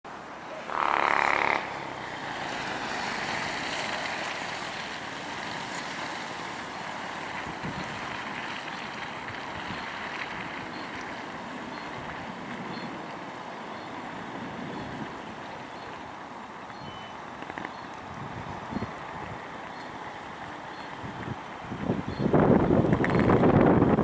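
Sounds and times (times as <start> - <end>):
jet engines roaring: 0.1 - 9.3
honk-like pitched blast: 0.6 - 1.8.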